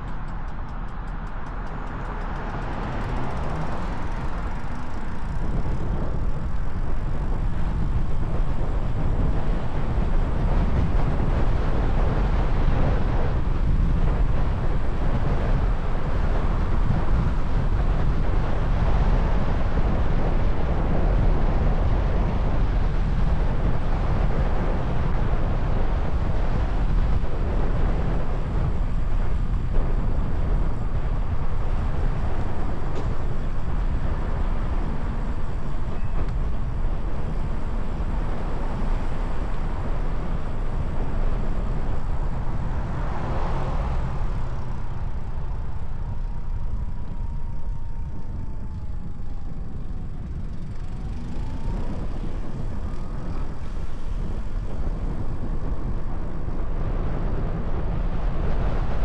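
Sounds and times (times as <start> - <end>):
road and tyre noise: 0.0 - 59.0
wind rumble on microphone: 0.0 - 59.0.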